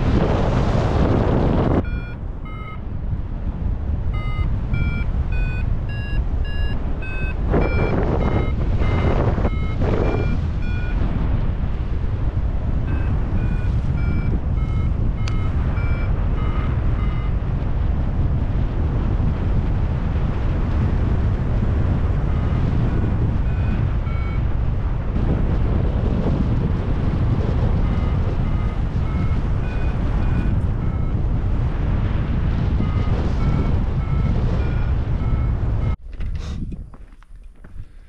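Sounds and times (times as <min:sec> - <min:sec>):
wind rush on microphone: 0:00.0 - 0:38.0
variometer beeping: 0:01.6 - 0:03.1, 0:04.0 - 0:17.6, 0:22.1 - 0:26.4, 0:27.1 - 0:36.0.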